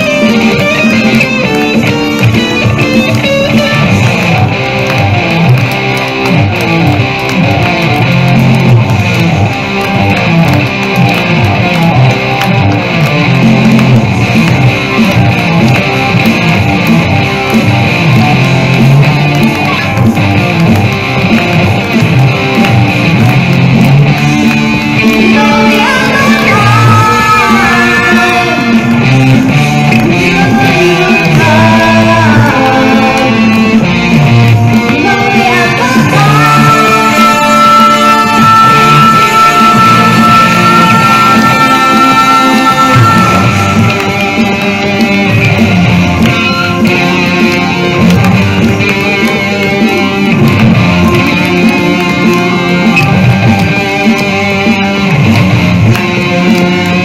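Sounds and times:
amplified electric guitar: 0:00.0 - 0:57.0
low bass: 0:00.0 - 0:57.0
person singing: 0:24.6 - 0:55.4.

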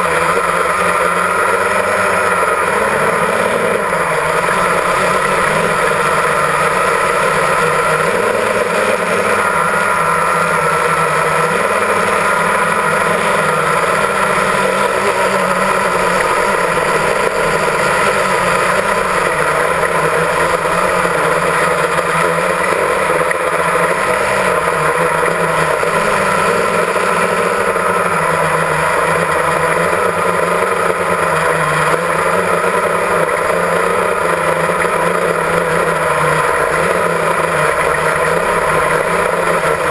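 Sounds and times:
drone propellers whining: 0:00.0 - 0:39.9.

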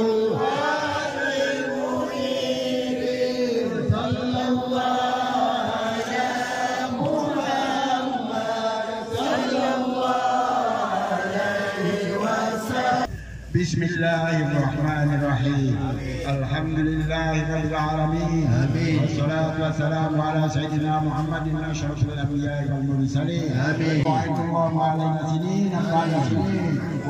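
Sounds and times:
group chanting in unison: 0:00.0 - 0:13.2.

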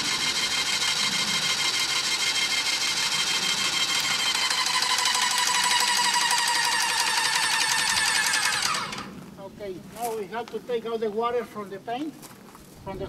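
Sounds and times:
paint sprayer pump whining: 0:00.0 - 0:09.2.

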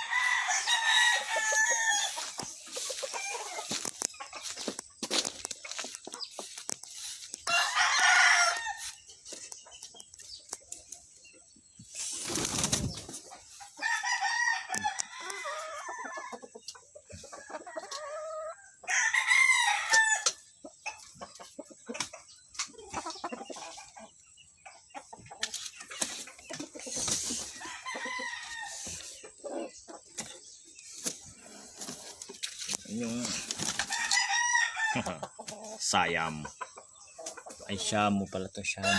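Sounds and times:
roosters crowing: 0:00.0 - 0:09.1, 0:12.4 - 0:20.5, 0:26.9 - 0:29.8, 0:31.4 - 0:36.5, 0:37.7 - 0:38.9
chicken clucks: 0:00.0 - 0:19.0, 0:19.8 - 0:38.9.

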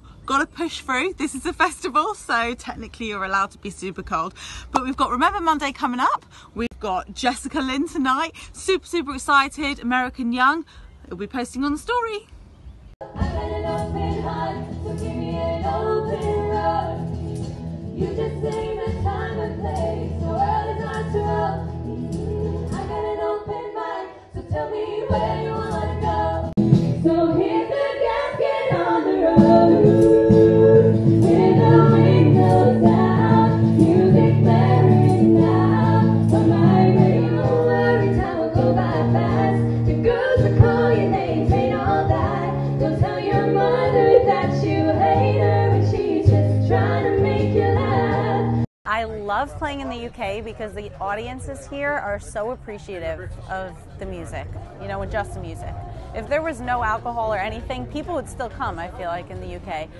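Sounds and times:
women singing in harmony: 0:13.0 - 0:48.7
acoustic guitar: 0:13.1 - 0:23.1, 0:25.0 - 0:27.6, 0:28.7 - 0:48.7.

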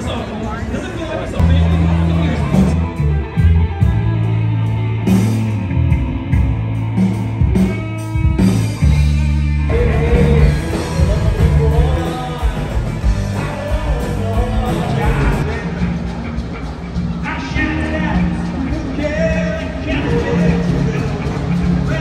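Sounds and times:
electric guitar: 0:01.4 - 0:22.0
live rock band: 0:01.4 - 0:22.0
person singing: 0:09.0 - 0:16.3, 0:17.4 - 0:22.0.

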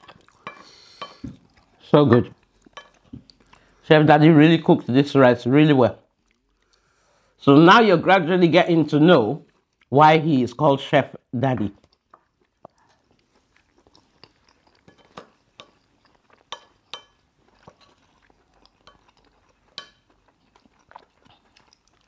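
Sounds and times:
chewing: 0:00.0 - 0:03.8, 0:06.1 - 0:07.0, 0:11.8 - 0:22.0
spoons tapping on plates: 0:16.5 - 0:17.2.

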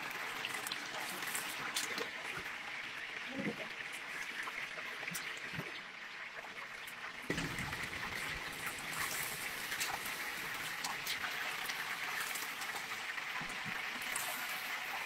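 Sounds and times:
oil sizzling in deep fryer: 0:00.0 - 0:15.0.

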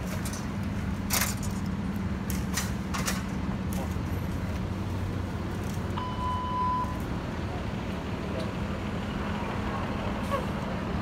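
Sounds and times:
steady beep: 0:06.0 - 0:07.0.

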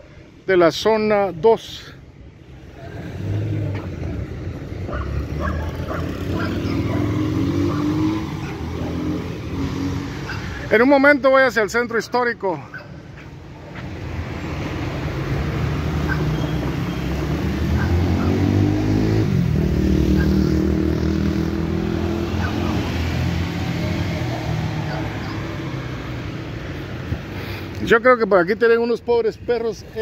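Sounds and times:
street traffic: 0:00.0 - 0:30.0
vehicle engine passing: 0:02.4 - 0:10.8, 0:13.1 - 0:27.5.

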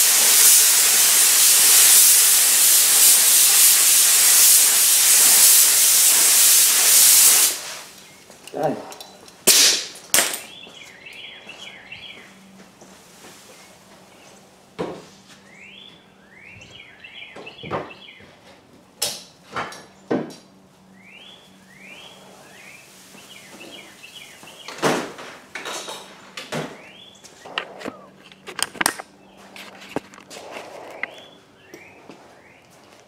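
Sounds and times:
tools clattering on a workbench: 0:08.3 - 0:10.5, 0:17.7 - 0:20.5, 0:24.8 - 0:26.8, 0:27.5 - 0:30.4
songbird chirping: 0:10.5 - 0:12.6, 0:15.5 - 0:18.3, 0:21.0 - 0:24.8.

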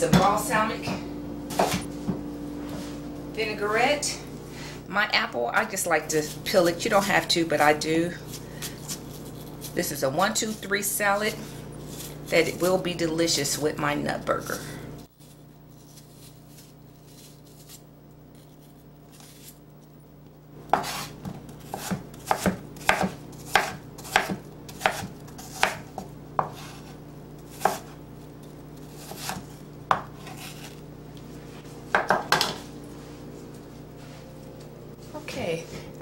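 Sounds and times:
knife chopping on wooden board: 0:20.7 - 0:26.9, 0:27.5 - 0:28.0, 0:29.0 - 0:30.7, 0:31.9 - 0:32.6.

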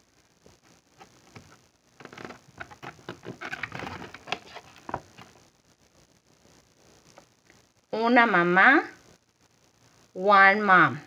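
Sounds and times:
cardboard page turning: 0:01.0 - 0:05.4.

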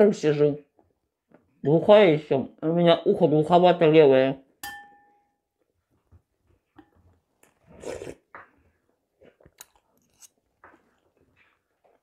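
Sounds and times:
metal spoon clinking on bowl: 0:04.6 - 0:05.4
person chewing: 0:07.4 - 0:11.1.

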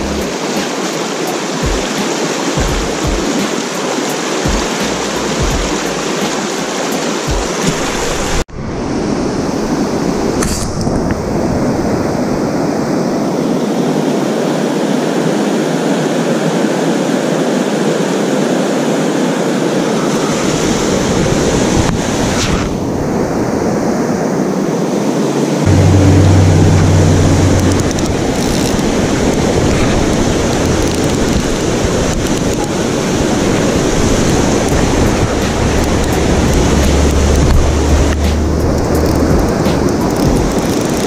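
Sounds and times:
river rapids rushing over rocks: 0:00.0 - 0:08.4, 0:24.3 - 0:41.0
low rumble: 0:25.6 - 0:32.2, 0:34.0 - 0:40.6.

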